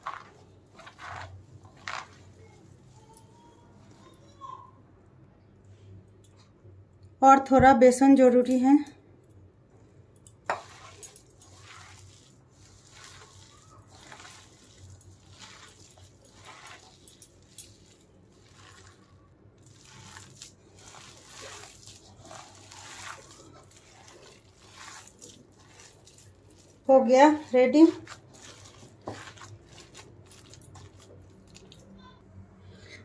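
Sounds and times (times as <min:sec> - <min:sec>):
hand kneading dough squelching: 0:00.0 - 0:04.6, 0:10.5 - 0:32.2.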